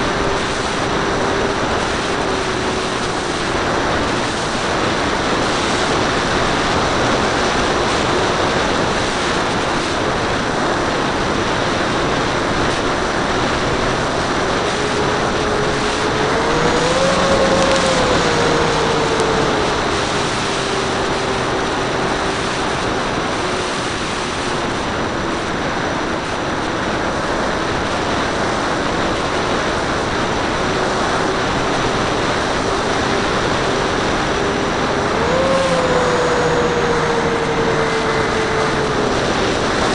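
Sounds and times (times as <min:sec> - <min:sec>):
wind rushing over camera: 0:00.0 - 0:39.9
electric motors whining: 0:10.6 - 0:25.0, 0:30.3 - 0:39.9.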